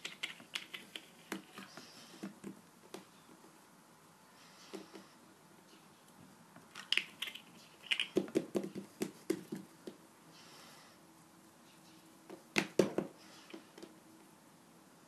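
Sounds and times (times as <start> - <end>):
hands patting play dough: 0.0 - 3.1, 6.8 - 10.0.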